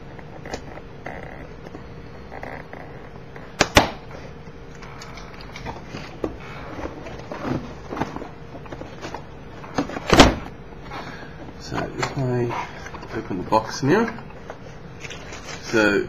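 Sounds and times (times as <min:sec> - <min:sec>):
cardboard rustling and scraping: 0:05.6 - 0:15.9.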